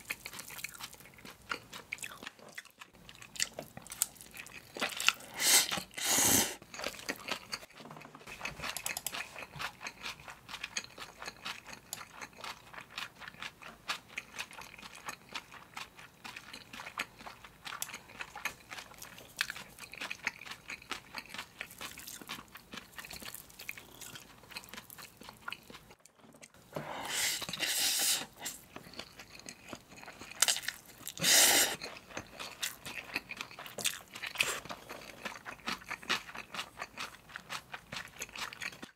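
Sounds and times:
crunchy wet chewing: 0.0 - 38.9
slurping noodles: 5.1 - 6.6, 26.7 - 28.7, 31.1 - 31.9.

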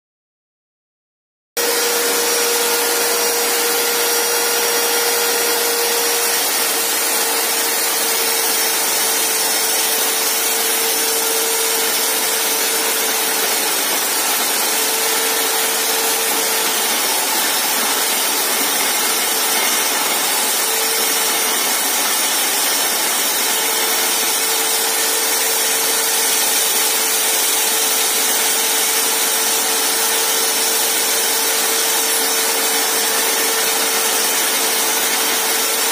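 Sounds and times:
diamond core drill grinding concrete: 1.6 - 35.9
drill motor whine: 1.6 - 35.9.

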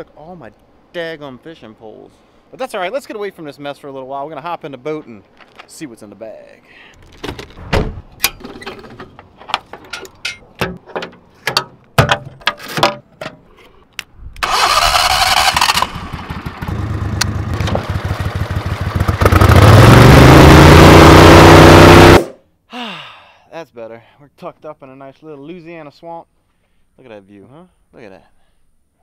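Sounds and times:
boat motor idling and revving: 15.8 - 22.3.

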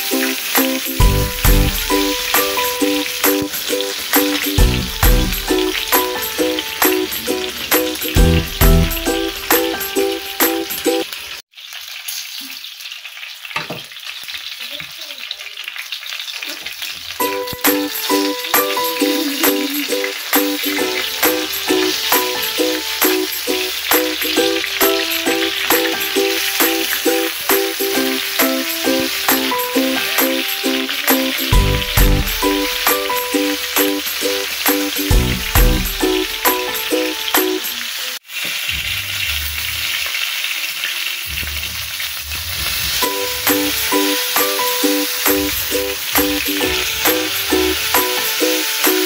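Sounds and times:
music with plucked beat: 0.0 - 11.1, 17.2 - 37.8, 43.0 - 49.0
oil sizzling and spitting: 0.0 - 49.0
low thumps: 38.7 - 40.0.

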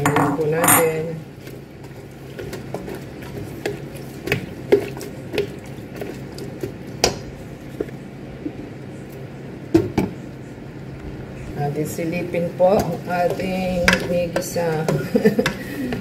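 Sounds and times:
spatula stirring in pot: 0.0 - 8.1, 11.8 - 16.0
low hum: 6.8 - 14.6
spatula scraping pot: 11.4 - 16.0.

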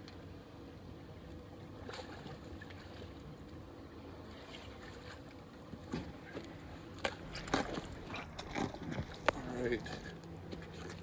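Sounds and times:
low wind: 0.0 - 11.0
water noise: 0.0 - 11.0
knocks and splashes: 1.8 - 3.2, 4.3 - 6.4, 7.0 - 11.0.

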